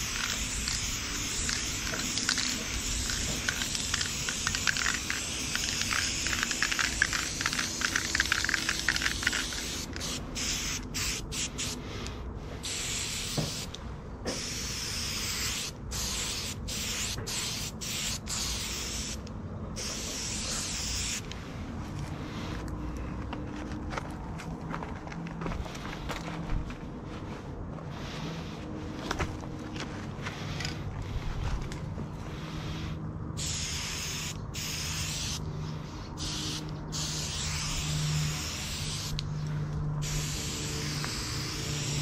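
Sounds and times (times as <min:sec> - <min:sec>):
spray-paint can spraying: 0:00.0 - 0:12.0, 0:12.6 - 0:19.2, 0:19.8 - 0:21.3, 0:33.4 - 0:35.4, 0:36.2 - 0:39.3, 0:40.0 - 0:42.0.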